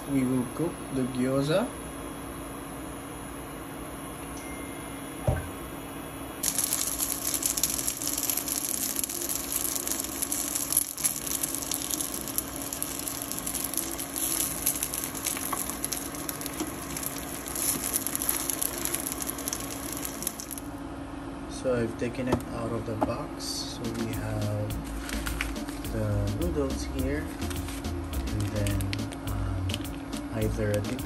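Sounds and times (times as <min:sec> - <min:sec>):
knock: 0:05.2 - 0:05.5
dumplings sizzling in oil: 0:06.4 - 0:20.7.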